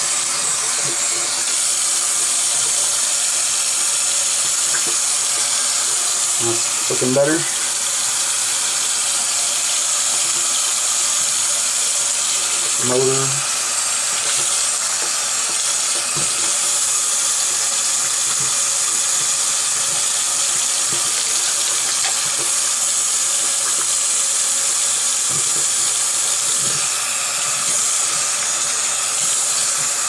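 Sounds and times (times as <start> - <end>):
tap running into sink: 4.4 - 5.7, 14.1 - 24.4, 25.2 - 30.0.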